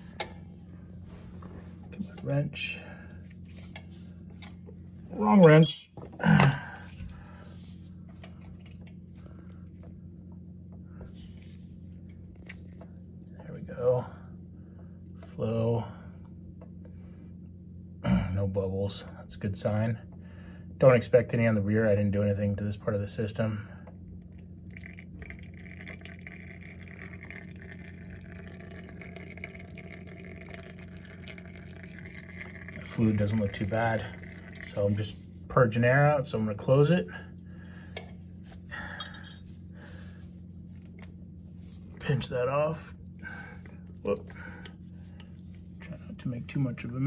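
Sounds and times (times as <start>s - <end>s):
steady low hum: 0.0s - 47.0s
fluid trickling into bottle: 24.6s - 35.0s.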